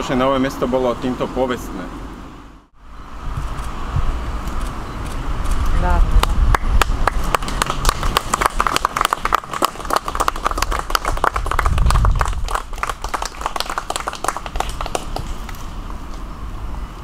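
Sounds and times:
crowd applauding: 0:06.5 - 0:15.6
low rumble: 0:10.9 - 0:13.0.

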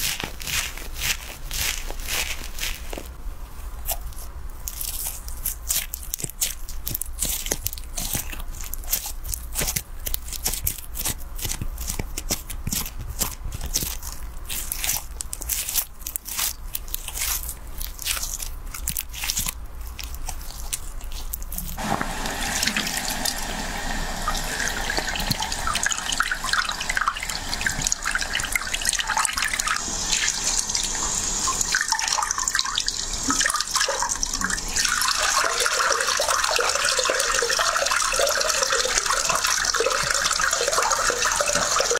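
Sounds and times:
hands rubbing on skin: 0:00.0 - 0:03.2
shower sprayer water stream: 0:21.8 - 0:41.9
water splashing into basin: 0:21.8 - 0:41.9.

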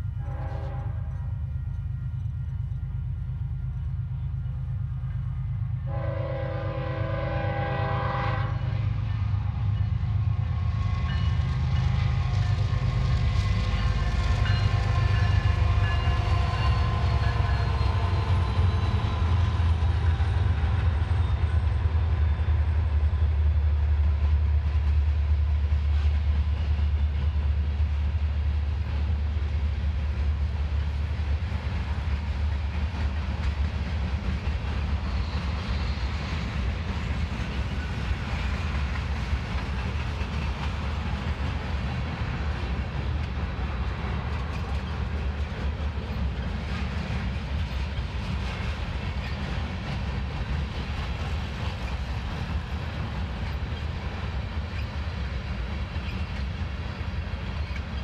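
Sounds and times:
diesel locomotive horn: 0:00.0 - 0:02.3, 0:05.8 - 0:09.0
freight train rumbling past: 0:00.0 - 0:58.0.

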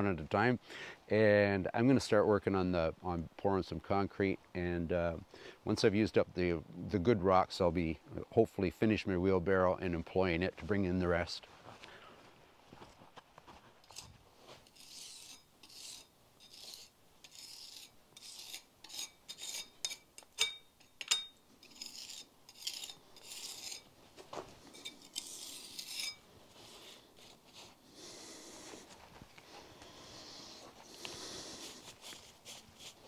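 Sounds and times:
trowel scraping on stone: 0:13.8 - 0:24.0, 0:24.6 - 0:29.0, 0:30.5 - 0:33.0.

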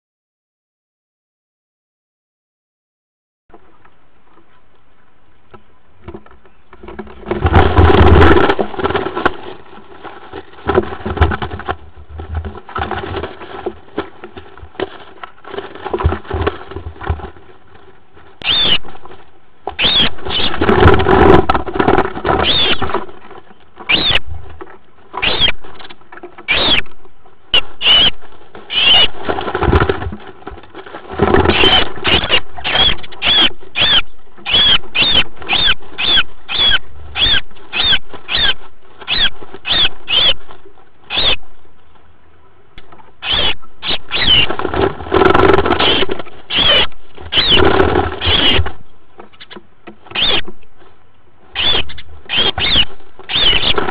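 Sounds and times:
sparrows chirping: 0:18.4 - 0:18.8, 0:31.6 - 0:40.4, 0:41.1 - 0:41.4, 0:51.6 - 0:53.8.

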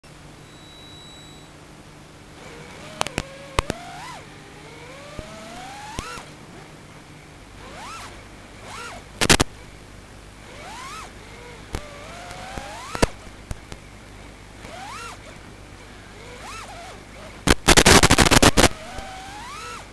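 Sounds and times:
small electric motors whining: 0:02.4 - 0:06.8, 0:07.6 - 0:09.7, 0:10.4 - 0:13.8, 0:14.6 - 0:19.9
sharp clicks: 0:02.5 - 0:04.2, 0:05.0 - 0:06.4, 0:08.7 - 0:09.7, 0:11.7 - 0:13.9, 0:16.4 - 0:19.9.

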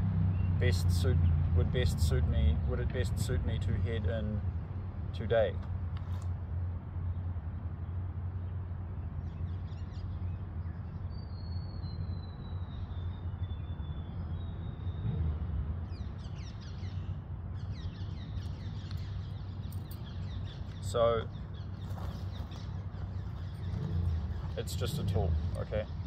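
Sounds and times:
birds chirping: 0:00.0 - 0:26.0
steady low rumble: 0:13.5 - 0:26.0.

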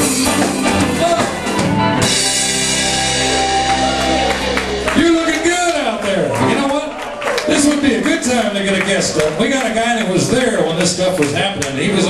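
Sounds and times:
electric guitars: 0:00.0 - 0:07.9
bass guitar: 0:00.0 - 0:12.0
drum kit playing: 0:00.0 - 0:12.0.

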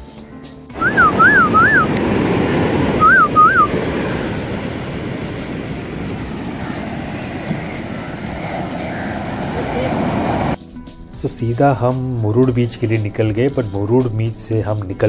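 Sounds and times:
whistled notes: 0:00.8 - 0:02.0, 0:02.8 - 0:05.9
sea surf washing on beach: 0:00.8 - 0:10.6
wind buffeting microphone: 0:00.8 - 0:10.6.

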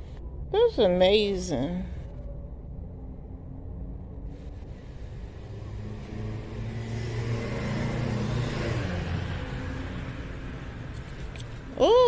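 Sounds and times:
vehicle passing by: 0:03.3 - 0:11.8.

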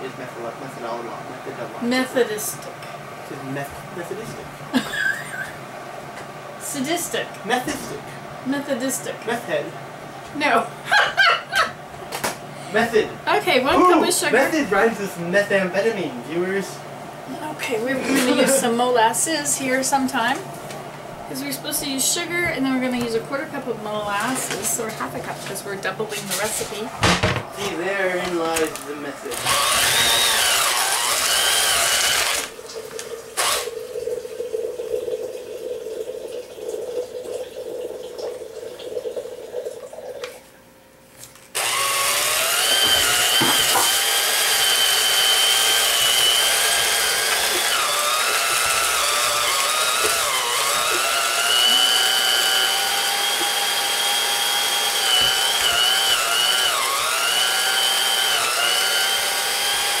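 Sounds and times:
electric hand mixer whining: 0:23.0 - 0:32.6, 0:33.4 - 0:33.8, 0:41.5 - 1:00.0.

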